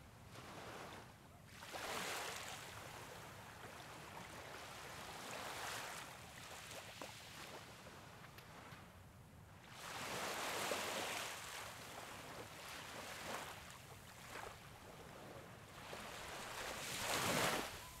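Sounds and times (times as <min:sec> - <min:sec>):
sea waves breaking on beach: 0:01.5 - 0:02.9, 0:09.7 - 0:14.7, 0:15.7 - 0:18.0.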